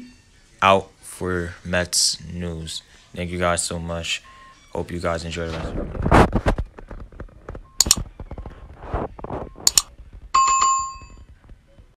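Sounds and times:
sharp mouse clicks: 7.8 - 8.0, 9.6 - 9.9
notification bell ding: 10.4 - 11.2.

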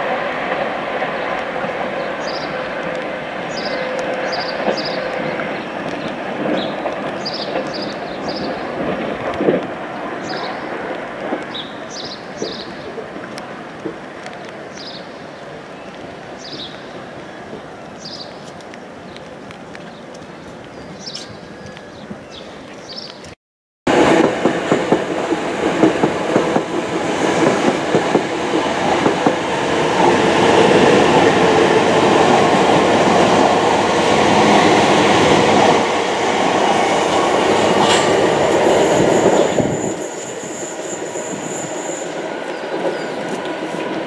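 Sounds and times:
thin high squeal: 38.7 - 42.2.

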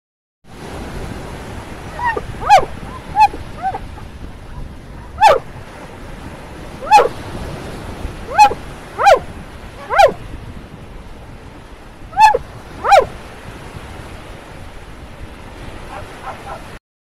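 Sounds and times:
small waves breaking on shore: 0.5 - 16.8
dog barking: 2.0 - 5.5, 6.8 - 7.2, 8.3 - 10.2, 12.2 - 13.1, 15.9 - 16.7.

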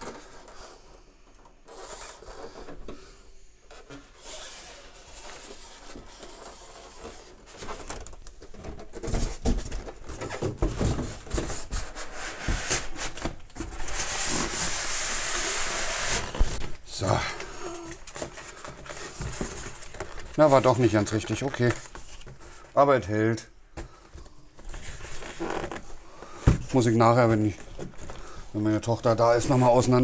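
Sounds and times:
styrofoam rubbing and scraping: 1.6 - 2.6, 3.7 - 8.1, 9.0 - 22.6, 24.7 - 25.9.

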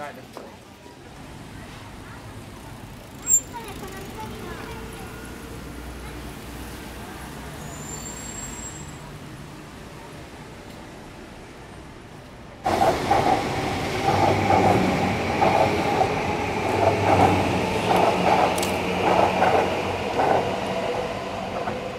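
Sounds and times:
faint street background: 0.0 - 21.9
wheel-on-rail noise: 2.1 - 6.8, 12.2 - 21.9
train motor hum: 12.7 - 21.9.

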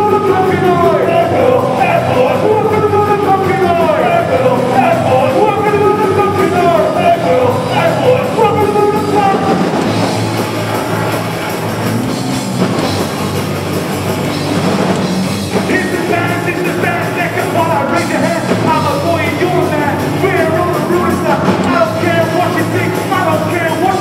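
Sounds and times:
singer shouting vocals: 0.0 - 9.8, 15.6 - 24.0
punk rock band playing: 0.0 - 24.0.

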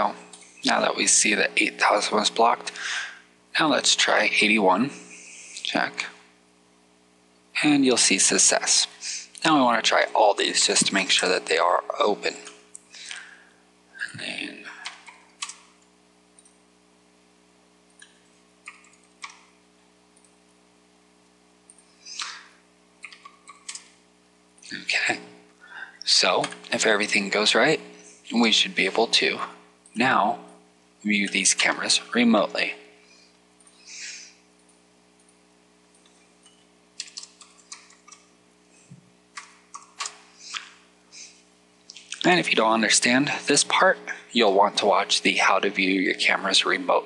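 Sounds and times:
faint electrical hum: 0.0 - 47.0
keyboard and mouse clicks: 14.8 - 15.7, 18.0 - 19.5, 23.0 - 23.9, 34.6 - 38.3, 39.4 - 40.7.

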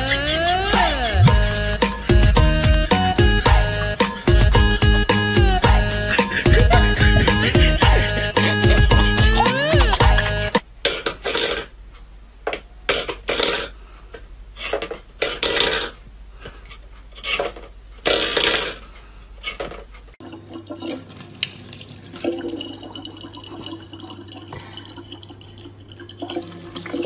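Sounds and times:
water running into plastic bottle: 20.2 - 27.0.

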